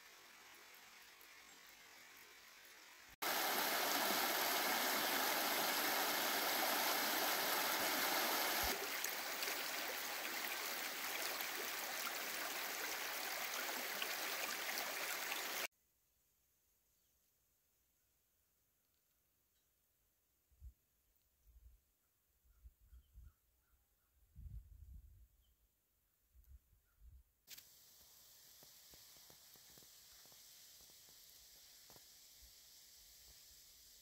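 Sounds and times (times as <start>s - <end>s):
creek running over stones: 0.0s - 15.7s, 28.0s - 33.4s.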